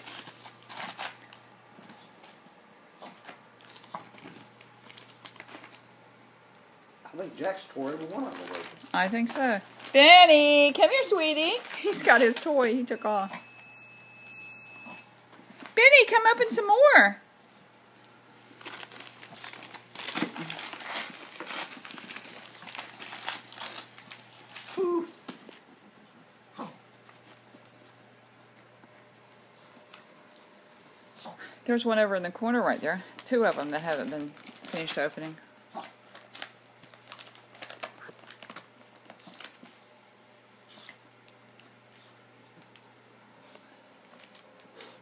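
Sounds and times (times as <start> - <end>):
wrapping paper rustling: 0.0 - 2.4, 3.2 - 6.0, 7.2 - 13.7, 17.8 - 26.0, 32.6 - 40.6, 41.2 - 45.0.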